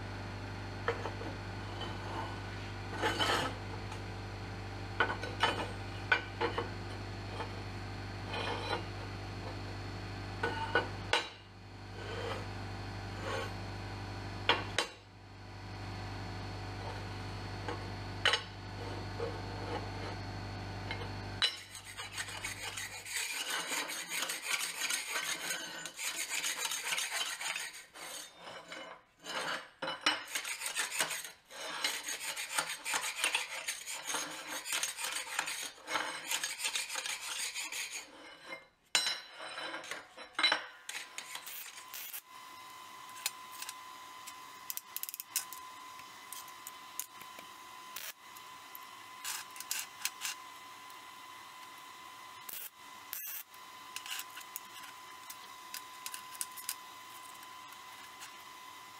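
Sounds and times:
metal rasping and scraping: 0:00.9 - 0:03.6, 0:08.3 - 0:08.9, 0:11.9 - 0:12.5, 0:13.1 - 0:13.6, 0:21.0 - 0:42.3, 0:44.7 - 0:51.0, 0:52.5 - 0:58.6.

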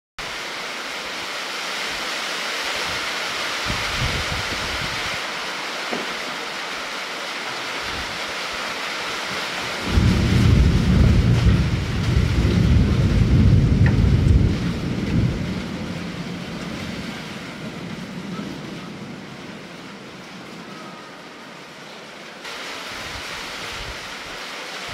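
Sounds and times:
rain hiss: 0:00.2 - 0:24.9
thunder rumbling: 0:03.6 - 0:05.2, 0:09.6 - 0:21.7.

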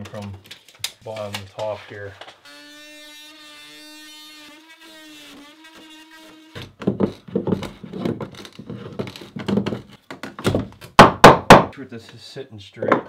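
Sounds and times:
scraping and knocking on wooden studs: 0:05.8 - 0:11.7.

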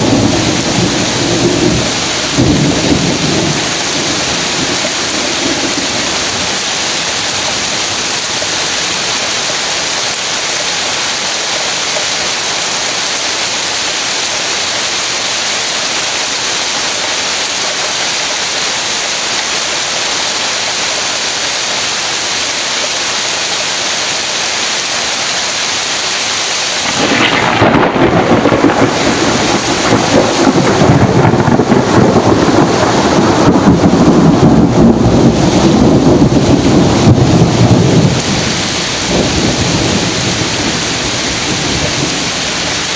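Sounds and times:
thunder rumbling: 0:00.0 - 0:09.7, 0:26.7 - 0:42.9
torrential rain: 0:00.0 - 0:42.9.

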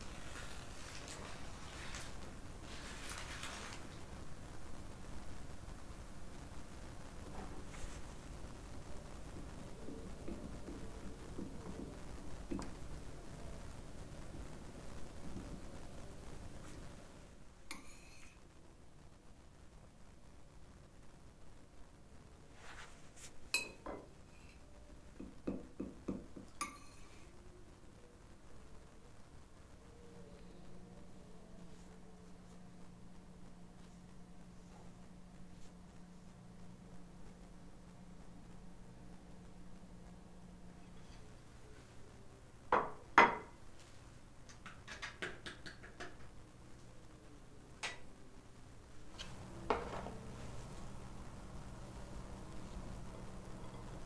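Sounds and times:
kitchenware knocks: 0:42.8 - 0:43.5.

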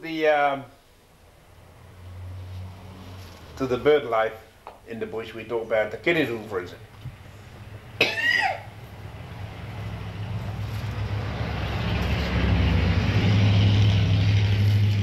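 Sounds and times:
engine rumble: 0:01.1 - 0:15.0
person coughing: 0:08.0 - 0:08.7.

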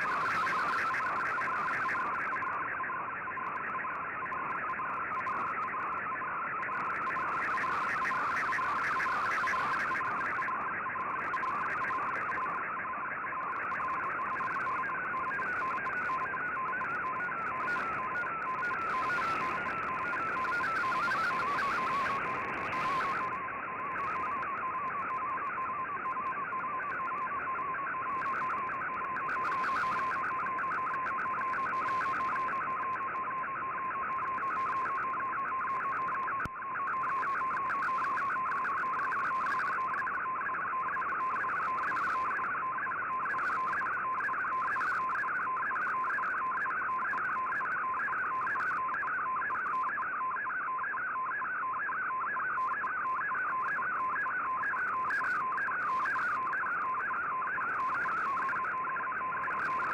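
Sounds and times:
warbling data tone: 0:17.2 - 0:25.0
radio band noise: 0:17.5 - 0:25.0.

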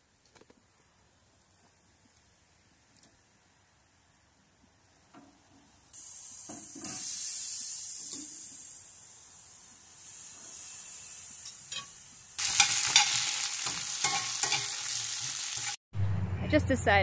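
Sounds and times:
meat sizzling on a grill: 0:04.6 - 0:15.8
vegetables frying in a skillet: 0:04.6 - 0:15.8.

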